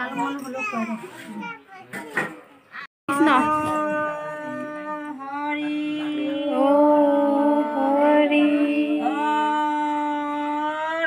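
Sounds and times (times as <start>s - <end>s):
women singing devotional chant: 3.1s - 11.0s.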